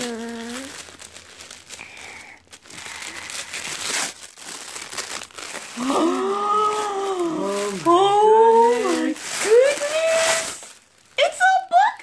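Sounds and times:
tissue paper crinkling: 0.0s - 12.0s
person speaking: 5.6s - 12.0s.

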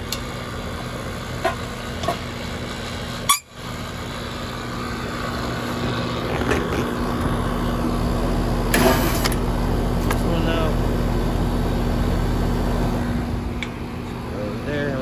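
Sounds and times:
air conditioner humming: 4.0s - 15.0s.

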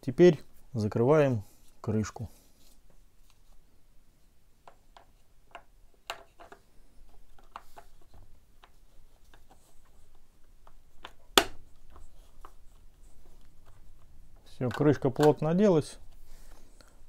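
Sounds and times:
plastic cover snapping into place: 11.0s - 11.6s
light plastic clicks and taps: 14.6s - 15.4s.

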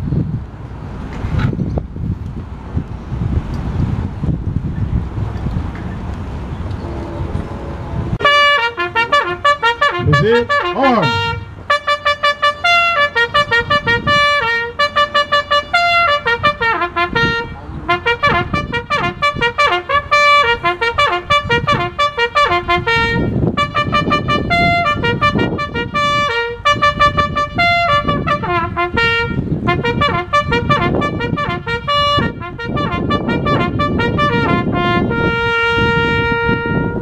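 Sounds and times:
bugle call on brass horn: 8.2s - 37.0s.

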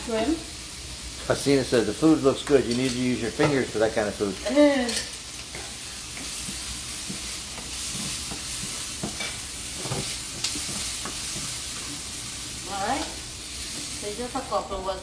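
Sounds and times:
shrimp sizzling in frying pan: 0.0s - 15.0s
spatula scraping pan: 4.8s - 12.2s.

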